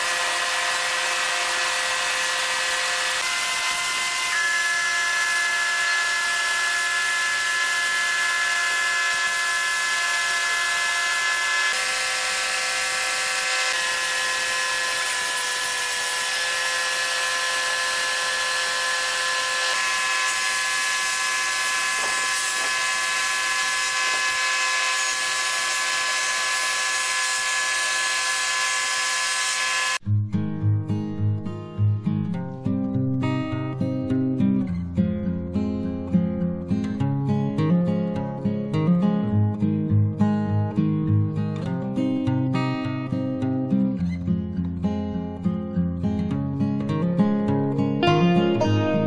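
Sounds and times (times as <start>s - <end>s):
spray gun hissing and whining: 17.3s - 30.0s.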